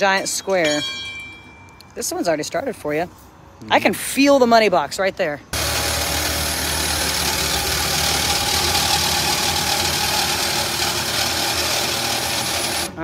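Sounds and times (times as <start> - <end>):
reciprocating saw cutting steel: 5.6 - 13.0.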